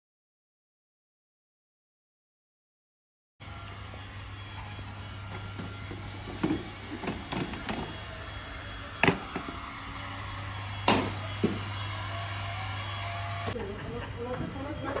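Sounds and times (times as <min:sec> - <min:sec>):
heat gun blowing hiss: 0:03.6 - 0:13.6.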